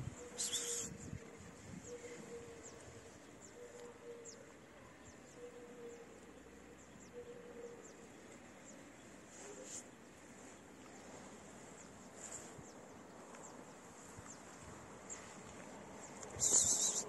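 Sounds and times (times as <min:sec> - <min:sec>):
short high chirps: 0:16.4 - 0:17.0.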